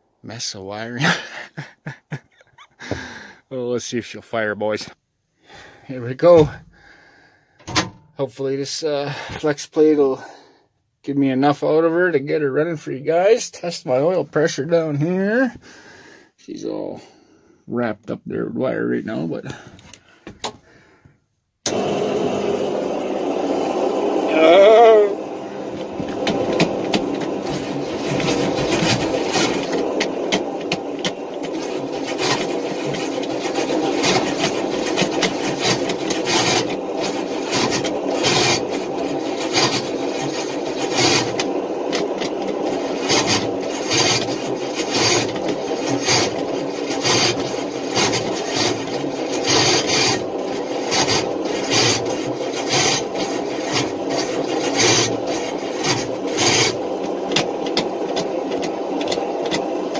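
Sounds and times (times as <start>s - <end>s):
starter motor cranking engine: 21.6s - 59.9s.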